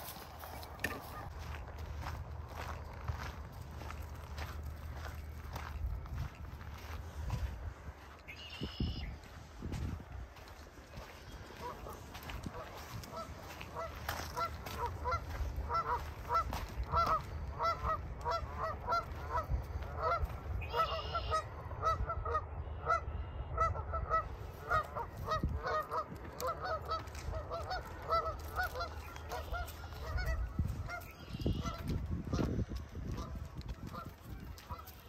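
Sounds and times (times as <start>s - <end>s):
geese honking: 10.4s - 35.0s.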